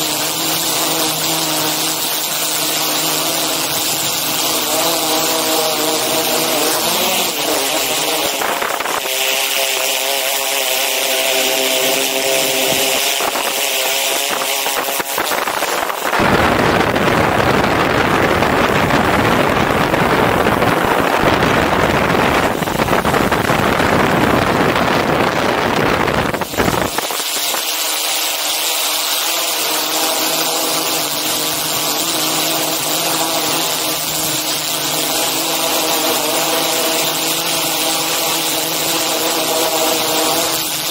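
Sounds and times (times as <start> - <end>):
drone propellers whining: 0.0 - 40.9
loud rushing noise: 15.2 - 27.6.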